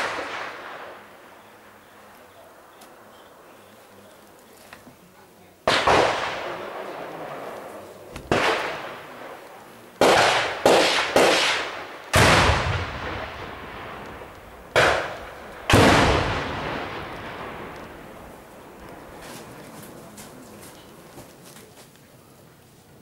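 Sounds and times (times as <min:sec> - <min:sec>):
gunshots with long echo: 0:00.0 - 0:02.4, 0:05.6 - 0:19.3.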